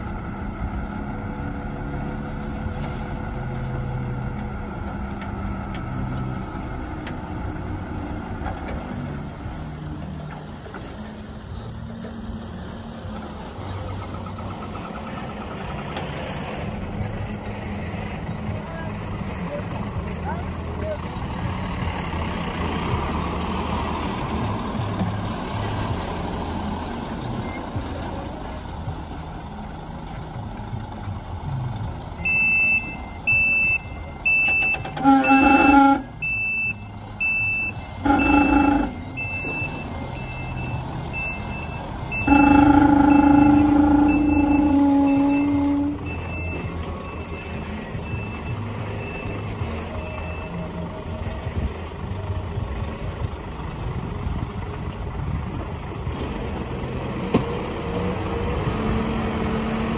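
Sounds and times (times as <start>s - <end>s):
diesel truck engine running: 0.0s - 59.9s
reversing beeper: 32.2s - 51.2s
truck horn blasts: 34.7s - 36.8s, 37.8s - 39.8s, 42.1s - 46.7s.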